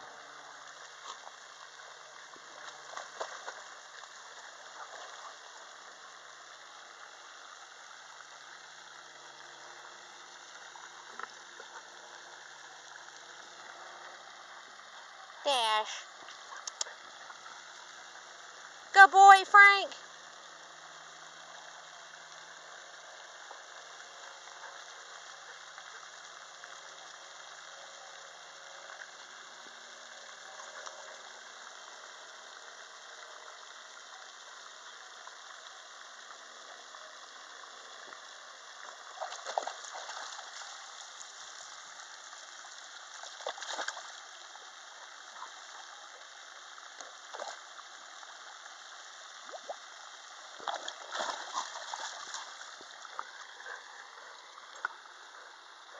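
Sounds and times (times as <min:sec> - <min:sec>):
dog swimming in water: 0:00.0 - 0:18.9, 0:20.0 - 0:55.9
short water splashes: 0:39.1 - 0:41.3, 0:43.1 - 0:44.2, 0:50.6 - 0:53.8.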